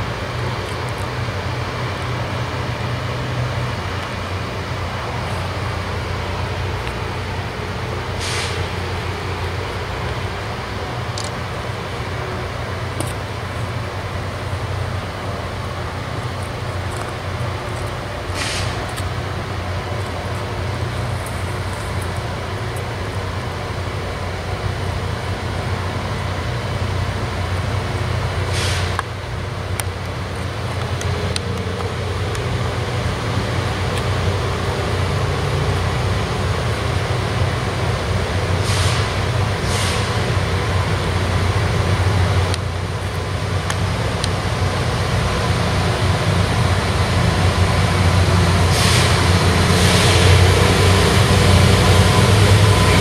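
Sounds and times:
diesel locomotive engine rumbling: 0:00.0 - 0:53.0
air hiss bursts: 0:05.4 - 0:09.5, 0:18.1 - 0:19.0, 0:28.4 - 0:29.2, 0:38.5 - 0:40.6, 0:48.6 - 0:51.1.

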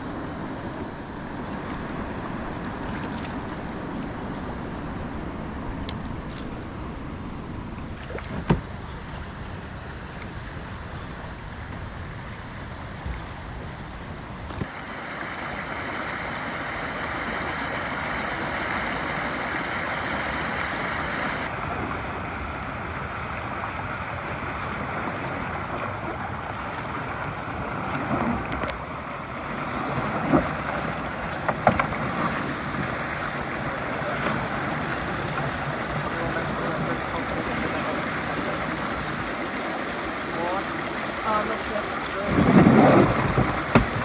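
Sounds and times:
water rushing over rocks: 0:00.0 - 0:44.0
short knocks: 0:43.2 - 0:44.0.

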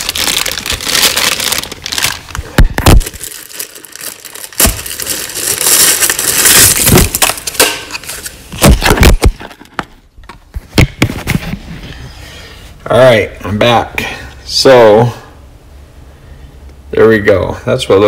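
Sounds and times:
plastic bag ripping and crinkling: 0:00.0 - 0:09.4.

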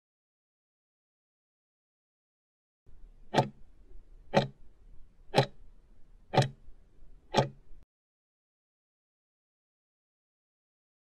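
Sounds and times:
ticking clock timer: 0:03.3 - 0:03.6, 0:04.3 - 0:04.6, 0:05.3 - 0:05.6, 0:06.3 - 0:06.6, 0:07.3 - 0:07.7.

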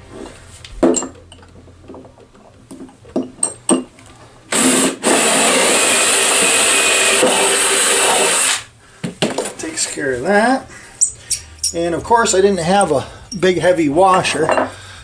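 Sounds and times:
cordless drill boring into wood: 0:04.5 - 0:08.7.

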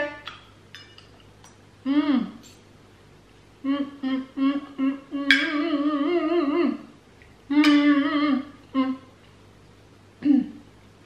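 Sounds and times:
woman humming: 0:01.8 - 0:02.5, 0:03.6 - 0:09.2, 0:10.2 - 0:10.7.

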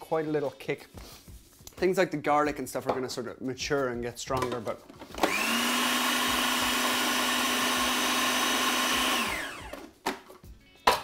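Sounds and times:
food processor motor whining: 0:05.1 - 0:09.9.

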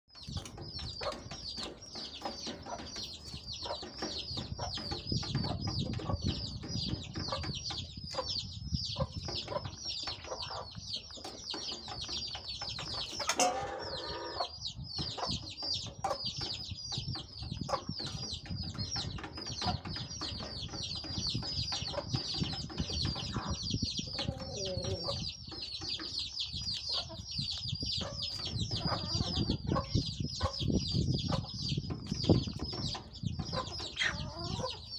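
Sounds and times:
chicks peeping: 0:00.1 - 0:34.9
chicken squawk: 0:34.0 - 0:34.8.

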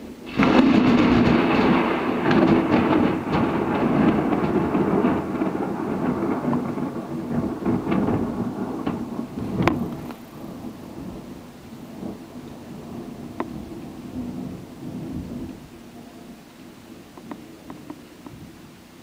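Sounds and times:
sharp thunder crack: 0:00.0 - 0:15.8
rolling thunder: 0:00.0 - 0:18.8.

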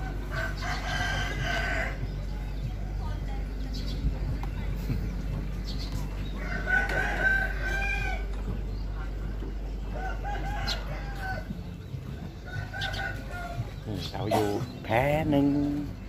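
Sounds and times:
steady low rumble: 0:00.0 - 0:16.0
rooster crowing: 0:06.4 - 0:08.2.

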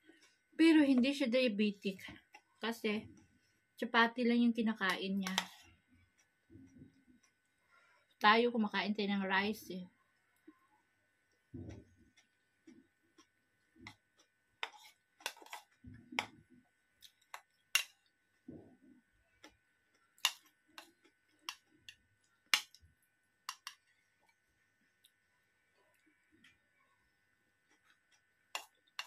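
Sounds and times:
soft chewing: 0:05.3 - 0:08.2, 0:10.0 - 0:29.0.

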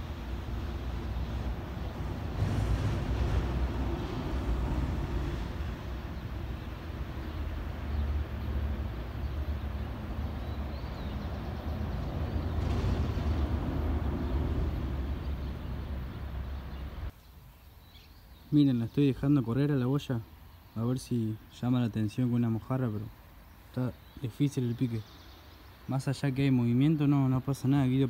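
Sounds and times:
traffic rumbling over bridge: 0:00.0 - 0:17.1.

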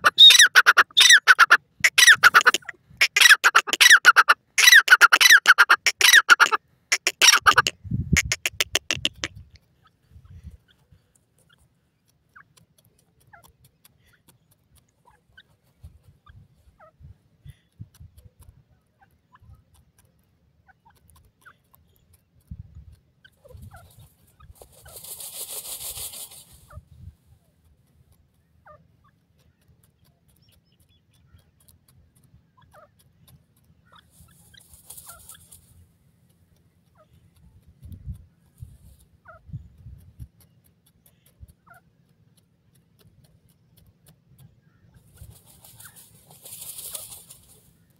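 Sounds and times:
bird dust-bathing in soil: 0:00.0 - 0:47.9
feathers rustling in dust: 0:24.5 - 0:26.7, 0:34.6 - 0:35.7, 0:45.2 - 0:47.7.

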